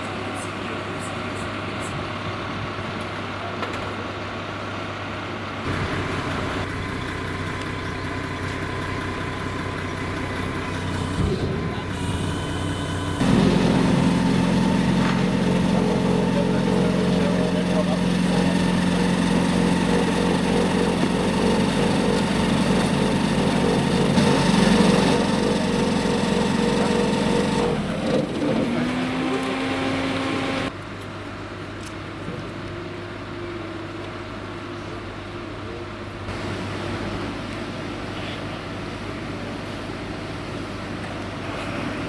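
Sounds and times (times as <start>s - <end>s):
outdoor background: 0.0s - 42.0s
small engine running: 5.7s - 30.7s.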